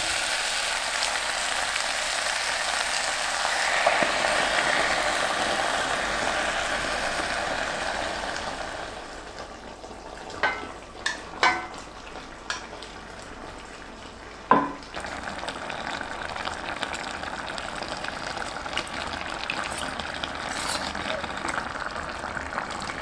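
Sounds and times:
meat sizzling in a pot: 0.0s - 23.0s
utensil clinking against pot: 19.6s - 21.0s.

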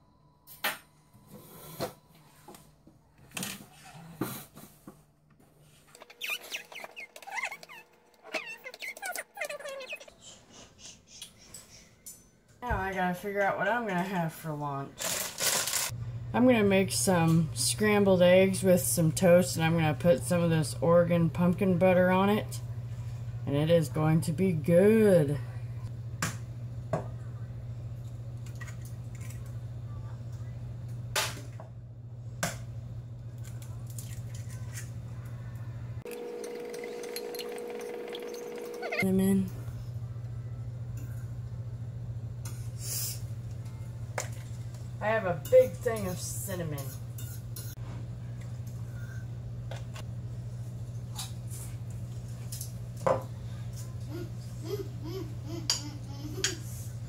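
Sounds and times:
steady low hum: 15.9s - 57.0s.

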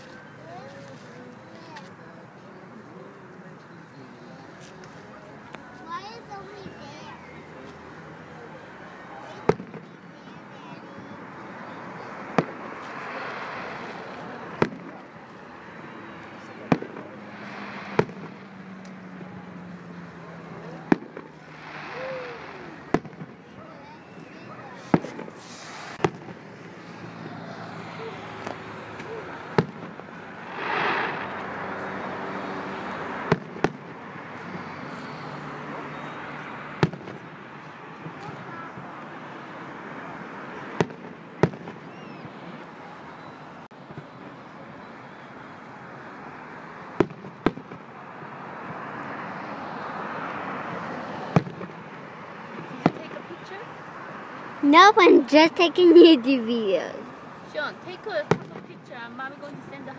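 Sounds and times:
fireworks bangs: 9.2s - 10.4s, 12.0s - 27.4s, 28.4s - 34.0s, 36.8s - 37.4s, 40.5s - 42.3s, 46.9s - 48.0s, 51.2s - 53.3s
firework hiss: 17.2s - 18.8s, 21.1s - 23.2s, 24.8s - 27.2s, 29.5s - 32.9s.

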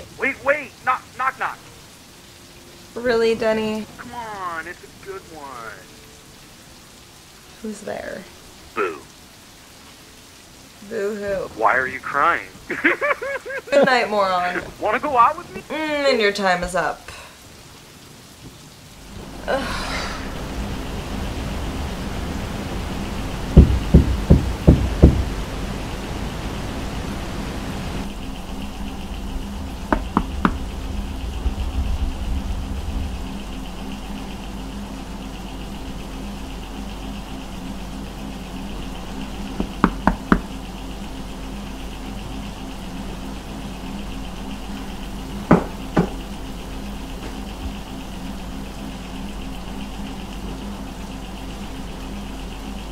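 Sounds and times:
steady low hum: 0.0s - 16.2s, 17.4s - 52.9s
short vocal sound: 8.8s - 9.1s
steady low rumble: 10.3s - 15.9s, 18.1s - 52.9s
heavy knocks on a wall: 23.6s - 25.3s, 45.5s - 46.2s.

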